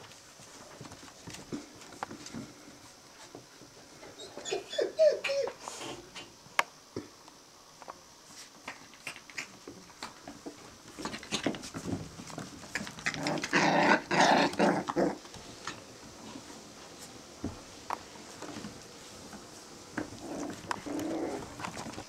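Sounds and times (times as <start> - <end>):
puppies scuffling: 0.0 - 3.8, 8.2 - 22.0
puppy growling: 12.6 - 15.3, 20.0 - 22.0.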